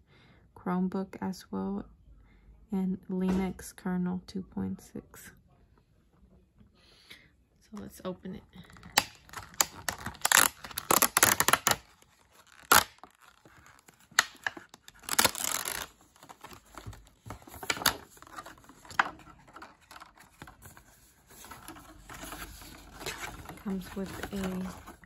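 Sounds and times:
plastic packaging crinkling and tearing: 8.6s - 25.0s.

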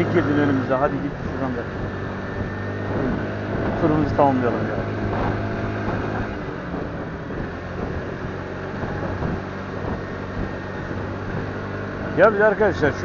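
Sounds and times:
road and wind noise: 0.0s - 13.0s
vehicle engine running: 0.0s - 13.0s.

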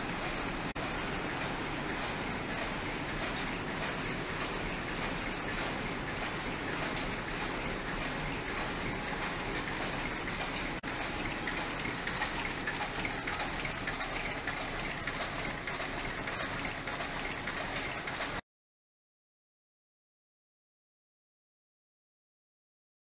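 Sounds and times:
textile machinery running: 0.0s - 18.4s.

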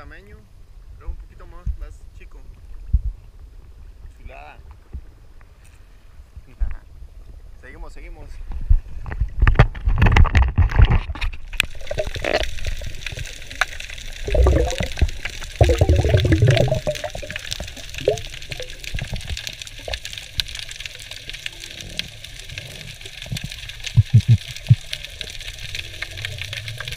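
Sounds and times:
underwater crackle: 8.4s - 26.9s
gurgling water and bubbles: 8.6s - 26.9s
water splashing: 9.4s - 26.9s.

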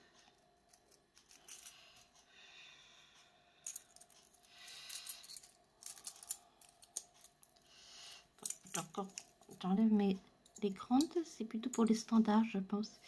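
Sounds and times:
metal parts scraping: 0.7s - 2.1s, 3.6s - 7.5s, 8.4s - 9.6s
metal needles clicking: 3.6s - 9.8s.

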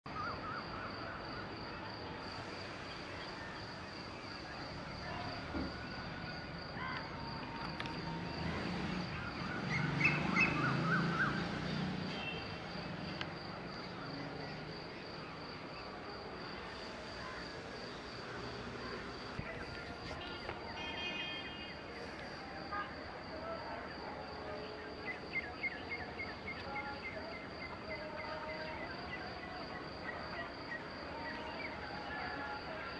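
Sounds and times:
birds chirping and calling: 9.1s - 11.9s.

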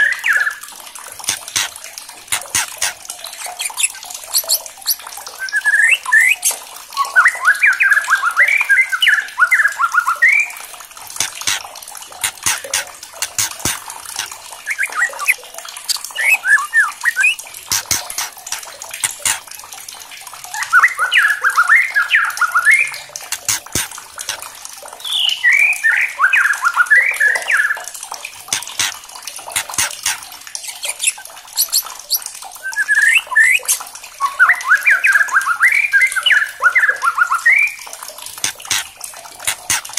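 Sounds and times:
sharp clicks: 1.2s - 5.0s, 11.2s - 14.3s, 17.7s - 19.5s, 23.3s - 24.4s, 28.5s - 30.2s, 38.4s - 39.9s
bird singing warbling notes: 14.6s - 18.3s.

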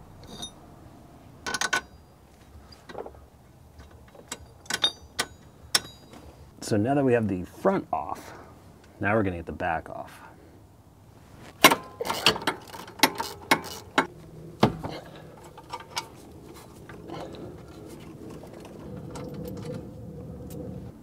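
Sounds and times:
steel tools clinking on metal: 0.2s - 0.6s, 3.9s - 6.3s
hand ratchet clicking: 11.7s - 14.1s.

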